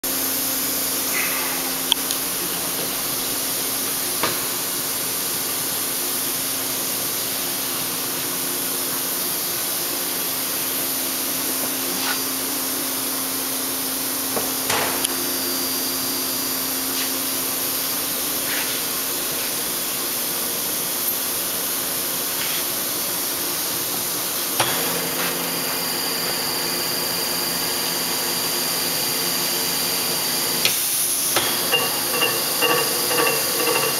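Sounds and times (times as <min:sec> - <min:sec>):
sharp metal clanks and knocks: 0:31.4 - 0:33.9.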